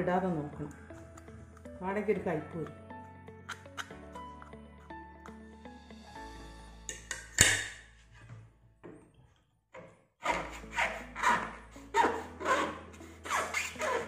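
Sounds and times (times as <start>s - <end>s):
knife sawing fruit on plate: 10.2s - 14.0s.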